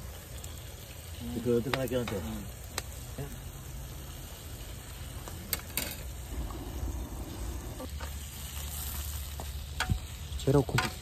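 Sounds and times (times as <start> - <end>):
meat sizzling in a frying pan: 0.0 - 11.0.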